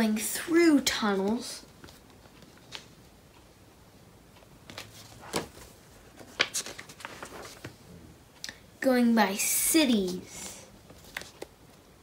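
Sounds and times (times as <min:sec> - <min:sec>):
book pages turning: 0:01.3 - 0:03.0, 0:04.6 - 0:07.8, 0:10.8 - 0:11.8.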